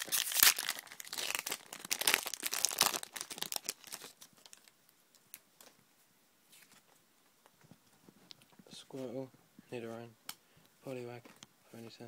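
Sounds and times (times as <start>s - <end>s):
foil wrapper crinkling and tearing: 0.0s - 4.7s.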